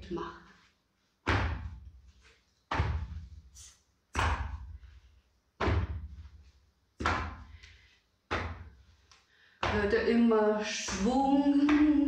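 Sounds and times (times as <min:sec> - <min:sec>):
heavy foot stamps on mat: 0:01.2 - 0:03.5, 0:04.1 - 0:04.9, 0:05.6 - 0:08.9, 0:09.6 - 0:10.1.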